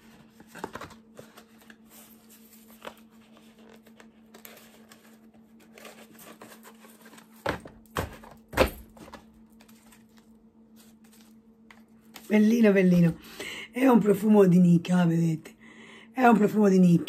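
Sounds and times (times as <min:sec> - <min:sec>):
cardboard packaging rustling: 0:00.0 - 0:12.3.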